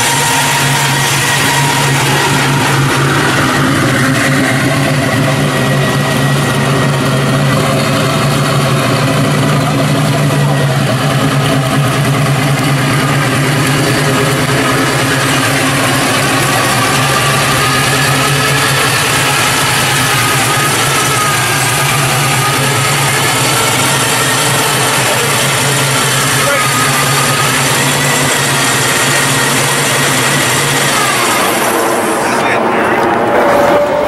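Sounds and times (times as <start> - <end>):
truck engine idling: 0.0 - 34.0.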